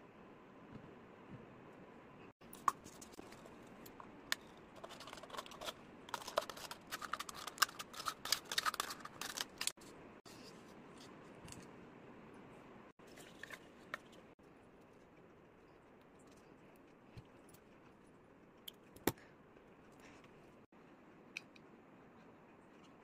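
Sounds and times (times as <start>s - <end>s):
rustling of craft materials: 2.4s - 11.8s.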